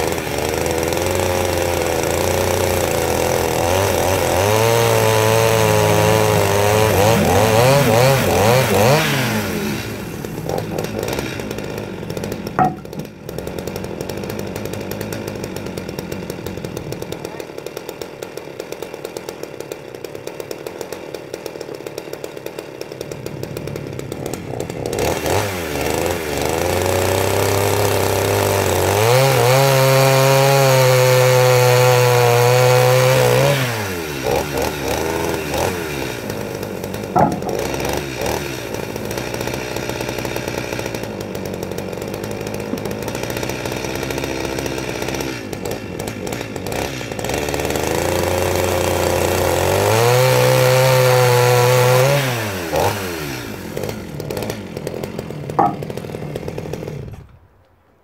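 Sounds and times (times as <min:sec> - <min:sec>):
chainsaw revving and idling: 0:00.0 - 0:57.6.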